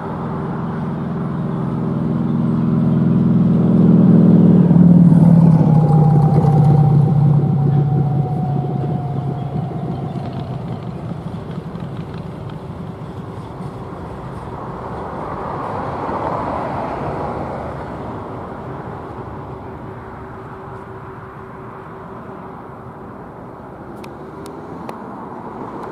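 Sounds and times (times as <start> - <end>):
thin whine: 0.0 - 14.9
freight wagons rumbling over rails: 0.0 - 21.7.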